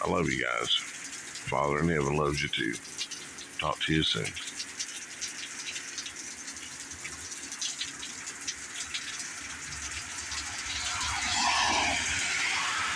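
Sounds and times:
heavy rain pouring: 9.6 - 12.9.

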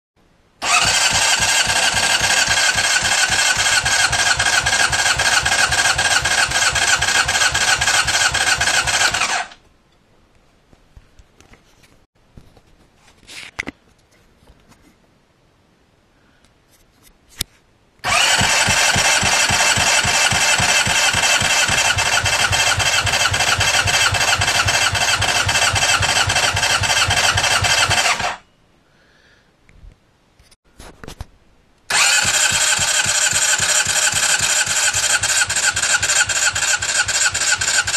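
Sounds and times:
motorcycle engine cranking: 0.6 - 9.6, 18.0 - 28.4, 31.9 - 37.9.

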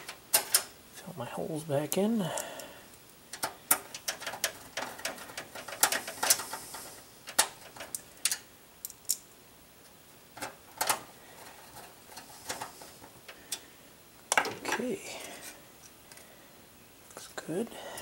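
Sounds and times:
metal plates clicking against case: 3.3 - 8.4.

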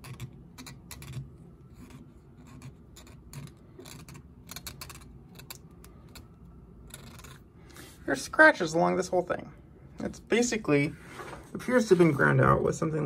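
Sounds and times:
fingertip rubbing on metal: 0.0 - 7.4.

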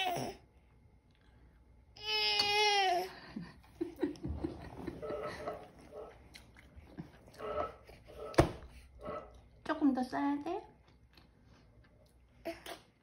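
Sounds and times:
baby whimpering and grunting: 0.0 - 0.5.

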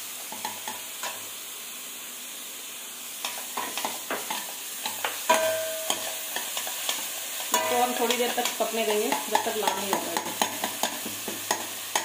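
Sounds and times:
paste sizzling in oil: 0.0 - 12.0
ringing metal clang: 5.3 - 6.0.

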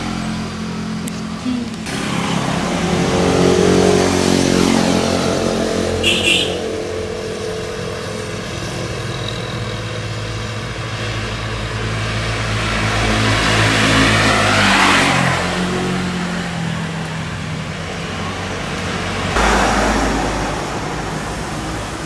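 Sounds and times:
motorcycle engine revving and idling: 0.0 - 14.3.

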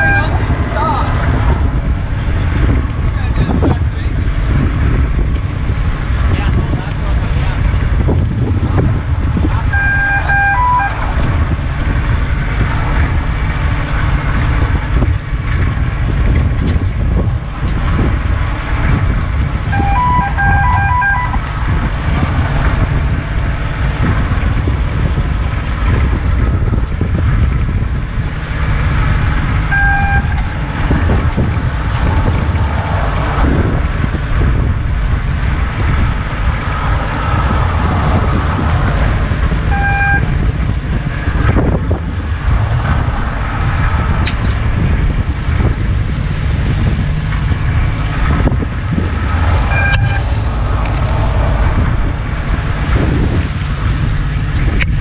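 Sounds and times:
short electronic beep: 0.0 - 0.4, 9.8 - 11.0, 19.8 - 21.4, 29.7 - 30.4, 39.7 - 40.3, 49.7 - 50.3
boat engine rumbling: 0.0 - 55.0
wind buffeting microphone: 0.0 - 55.0.

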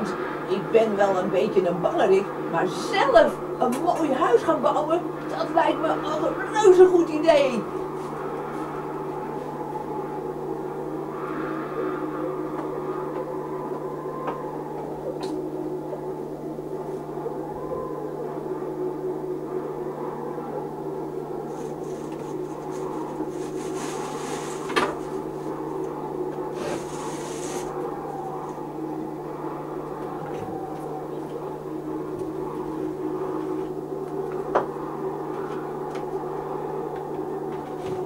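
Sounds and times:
low drone: 0.0 - 38.0
rubbing and scraping: 21.5 - 25.6, 26.5 - 27.8.

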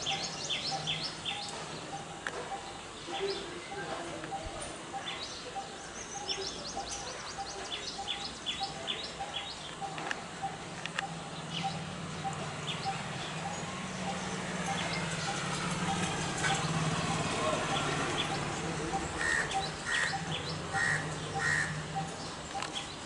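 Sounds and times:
bird repeating low tuk note: 0.0 - 23.0
birds chirping: 0.0 - 23.0.

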